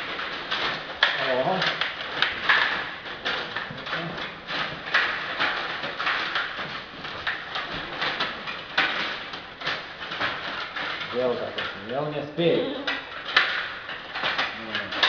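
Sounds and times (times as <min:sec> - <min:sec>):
table hockey plastic clacks: 0:00.0 - 0:12.0, 0:12.9 - 0:15.0.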